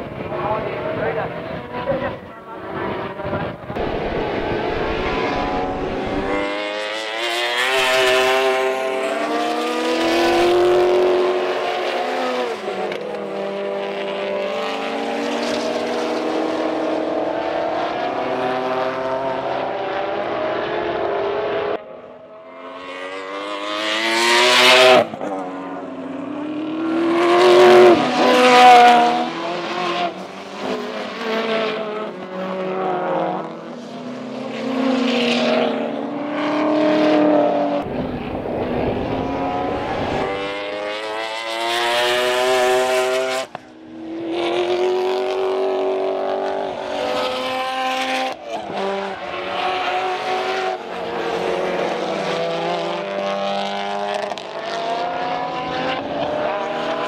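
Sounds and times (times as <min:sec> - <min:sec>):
race car engine at full throttle: 0:00.0 - 0:57.0
race cars passing by: 0:00.0 - 0:57.0.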